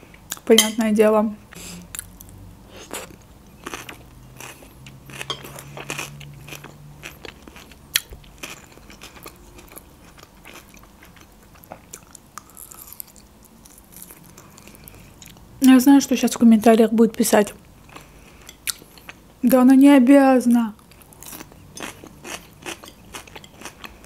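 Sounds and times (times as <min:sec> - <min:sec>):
crunchy chewing: 0:02.0 - 0:15.4, 0:20.8 - 0:24.0.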